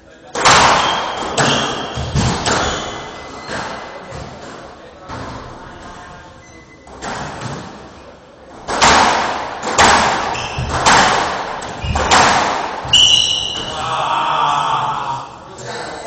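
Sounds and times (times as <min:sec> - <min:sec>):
shoe squeaking on wooden floor: 0:00.9 - 0:04.1, 0:10.3 - 0:10.9, 0:11.7 - 0:13.8
ball cracking off walls: 0:08.6 - 0:13.8.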